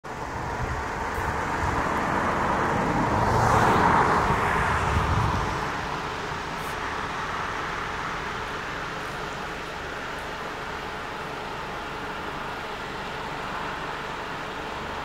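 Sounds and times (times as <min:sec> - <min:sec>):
car driving past: 0:01.1 - 0:07.9.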